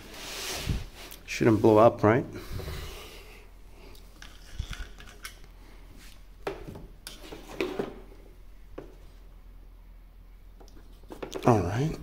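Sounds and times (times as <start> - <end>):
handling clicks and clinks: 4.2 - 5.5.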